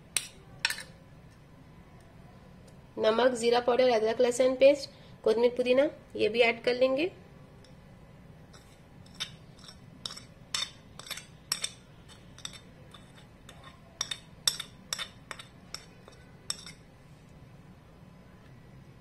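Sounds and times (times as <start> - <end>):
steel spoon clinking on china plate: 8.6 - 16.8.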